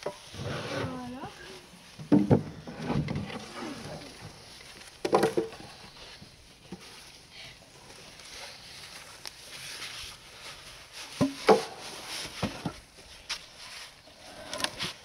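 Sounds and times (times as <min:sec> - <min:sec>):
logs knocking on wood: 0:02.0 - 0:03.4, 0:05.0 - 0:05.7.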